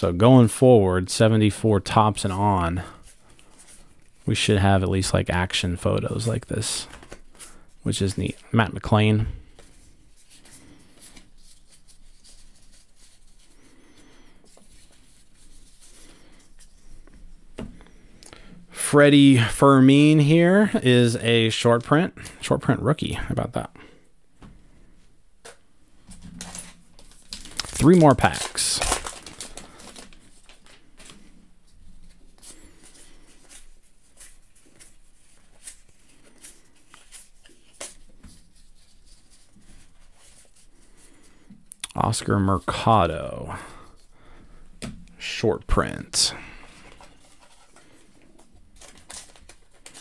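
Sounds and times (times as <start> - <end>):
cards flipped by hand: 25.4 - 31.3, 32.0 - 40.6, 46.9 - 50.0.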